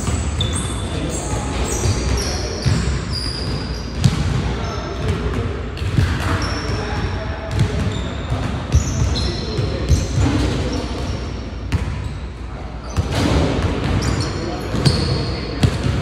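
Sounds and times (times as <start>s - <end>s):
sneaker squeaks: 0.0s - 5.2s, 5.8s - 16.0s
basketball bouncing on wooden floor: 7.5s - 7.9s.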